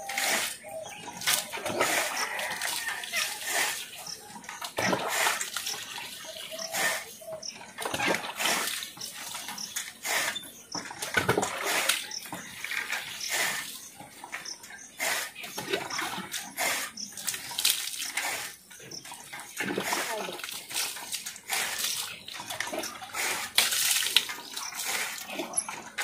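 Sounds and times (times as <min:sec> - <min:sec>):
water splashing on animal: 0:00.0 - 0:07.1, 0:15.0 - 0:26.0.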